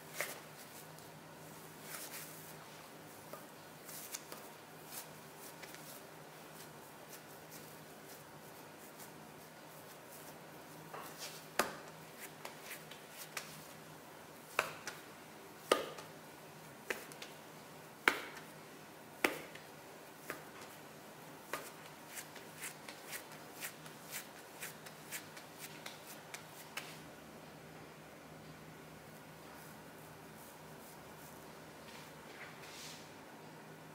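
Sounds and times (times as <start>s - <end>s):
dough slapping on a mat: 11.0s - 13.6s, 14.5s - 16.2s, 16.8s - 17.4s, 18.0s - 18.5s, 19.2s - 20.8s, 21.4s - 27.0s.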